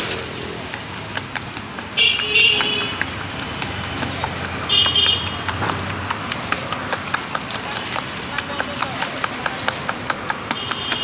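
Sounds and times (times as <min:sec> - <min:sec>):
low traffic rumble: 0:00.0 - 0:11.0
scattered clicks and clatter: 0:05.5 - 0:11.0.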